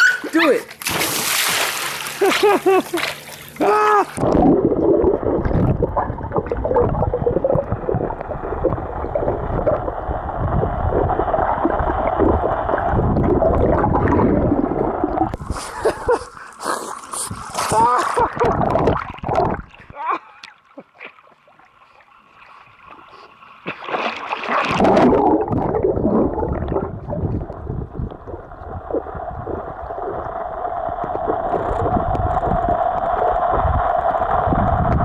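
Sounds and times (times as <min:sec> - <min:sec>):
pool water splashing: 0:00.0 - 0:27.4
muffled underwater rush: 0:03.5 - 0:20.0, 0:21.6 - 0:35.0.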